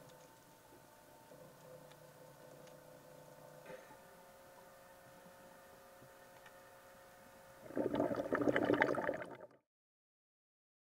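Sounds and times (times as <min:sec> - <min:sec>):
faint underwater hum: 0:00.0 - 0:09.6
loud bubbling burst: 0:07.7 - 0:09.5.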